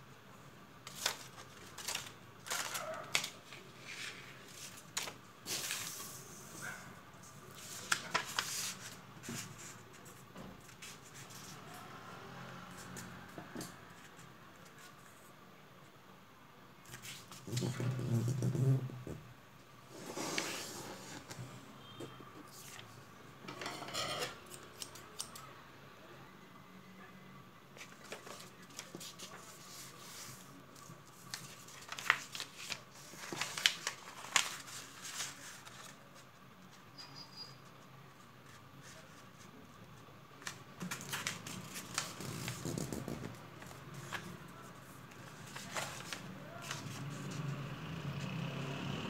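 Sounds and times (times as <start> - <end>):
paper rustling and crinkling: 0.8 - 11.7, 27.8 - 36.4, 40.4 - 47.4.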